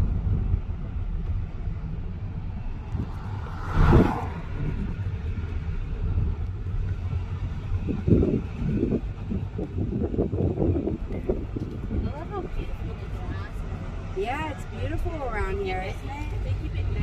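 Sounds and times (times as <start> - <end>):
engine and tyres rumbling: 0.0 - 17.0
short loud rush of noise: 2.8 - 5.0.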